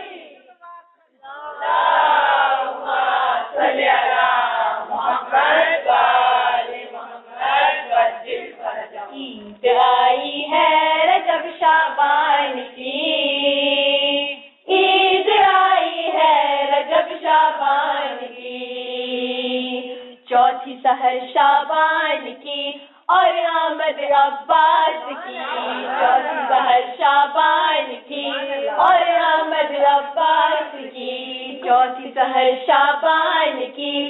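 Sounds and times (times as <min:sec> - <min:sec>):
chorus singing unaccompanied: 0:00.0 - 0:00.5, 0:01.1 - 0:34.0.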